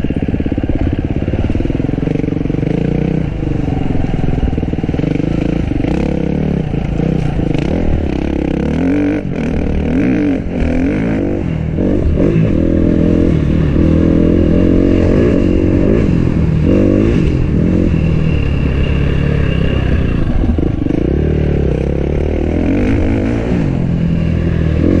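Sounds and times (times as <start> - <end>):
dirt bike engine revving: 0.0 - 25.0.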